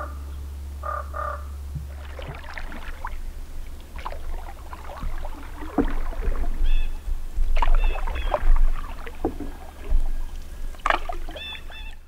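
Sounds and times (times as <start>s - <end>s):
low steady hum: 0.0s - 12.0s
crow cawing: 0.8s - 1.5s
canoe paddle splashing water: 0.8s - 12.0s.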